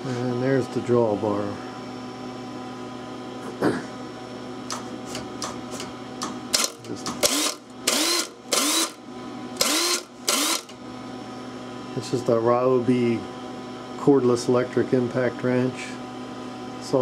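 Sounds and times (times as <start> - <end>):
steady machine hum: 0.0 - 17.0
impact wrench bursts with motor whine: 6.5 - 9.0, 9.6 - 10.8.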